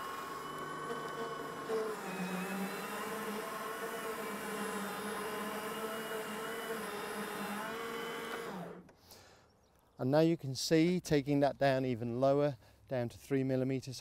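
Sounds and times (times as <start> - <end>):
lawn mower whirring: 0.0 - 9.0.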